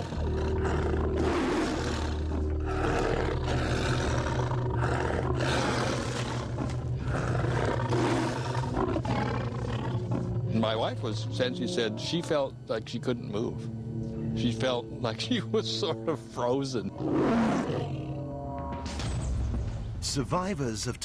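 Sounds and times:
tiger roaring: 0:00.0 - 0:12.6, 0:15.4 - 0:18.8
low steady hum: 0:00.0 - 0:18.8.

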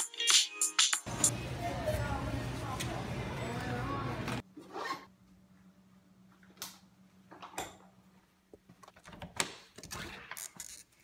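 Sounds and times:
background music: 0:00.0 - 0:01.2.

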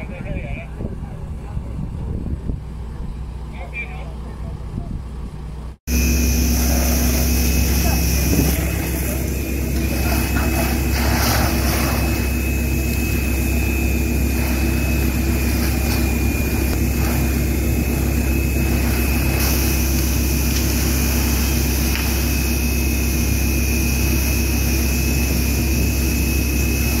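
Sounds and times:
pump roar with high whine: 0:00.0 - 0:27.0
water spray hissing: 0:06.2 - 0:24.9.

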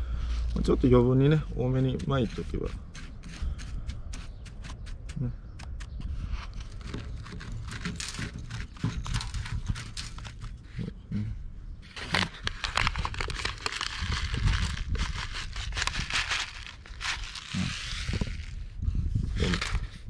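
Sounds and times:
clicks of gritty soil: 0:01.6 - 0:11.0, 0:11.8 - 0:20.0
paper envelope crinkling: 0:06.6 - 0:10.6, 0:11.9 - 0:18.7, 0:19.4 - 0:20.0.

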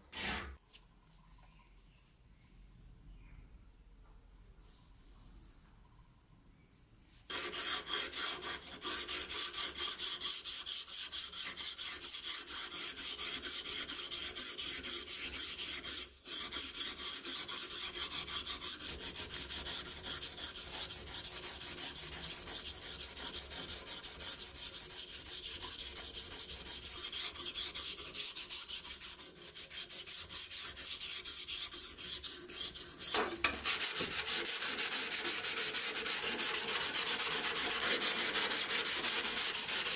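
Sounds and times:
blade rasping on sharpening stone: 0:07.3 - 0:33.2
sandpaper sanding steel blade: 0:07.3 - 0:39.9.

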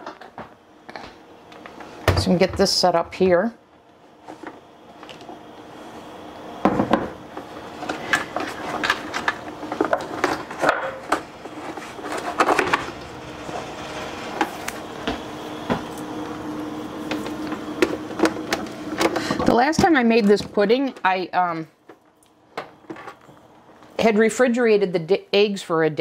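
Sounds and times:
low hum: 0:05.2 - 0:19.4.

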